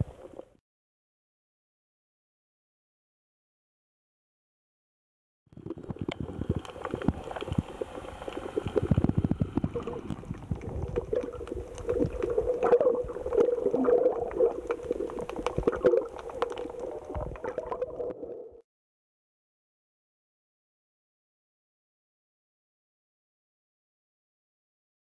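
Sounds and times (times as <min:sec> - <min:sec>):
crackling clicks underwater: 0:05.6 - 0:18.6
water moving against camera: 0:05.6 - 0:18.6.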